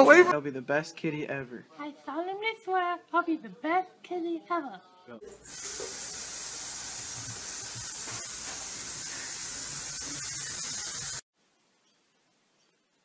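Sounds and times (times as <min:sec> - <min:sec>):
sink tap running: 0:05.4 - 0:11.2.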